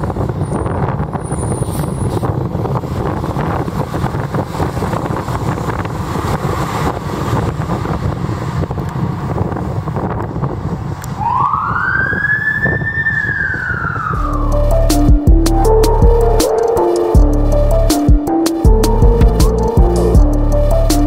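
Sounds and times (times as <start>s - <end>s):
fire engine rumbling: 0.0s - 21.0s
siren wail: 11.1s - 20.6s.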